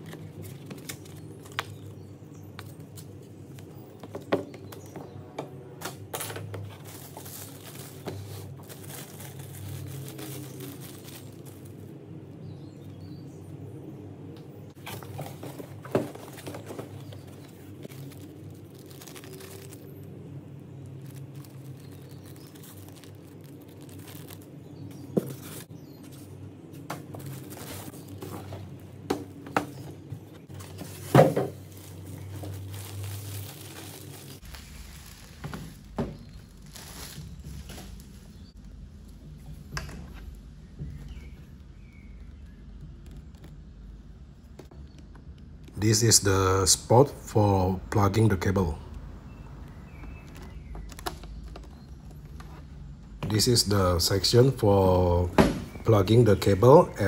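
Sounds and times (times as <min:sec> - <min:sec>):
packaging rustling: 0:00.0 - 0:05.1, 0:05.8 - 0:12.0, 0:14.8 - 0:39.1, 0:49.6 - 0:52.7
objects tapping and knocking: 0:04.0 - 0:07.4, 0:26.8 - 0:32.7.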